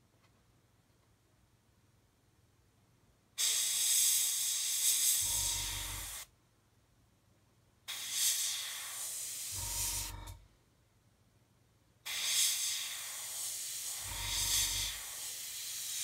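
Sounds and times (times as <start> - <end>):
airbrush spraying hiss: 3.4 - 6.3, 7.9 - 10.0, 12.1 - 16.0
low buzz: 5.2 - 6.2, 9.6 - 10.5, 14.0 - 15.0.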